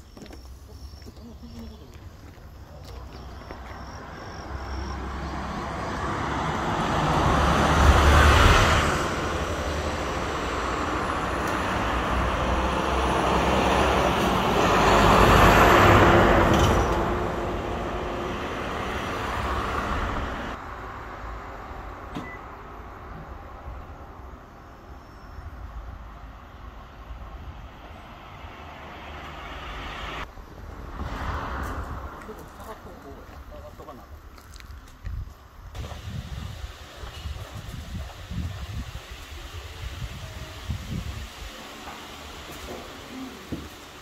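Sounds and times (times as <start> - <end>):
vehicles driving past: 2.1 - 44.0.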